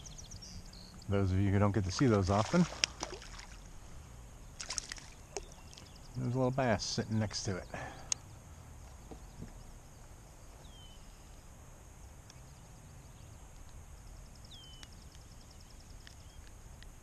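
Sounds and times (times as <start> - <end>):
outdoor background noise: 0.0 - 17.0
faint high ticks: 8.0 - 9.6, 12.2 - 12.5, 13.5 - 17.0.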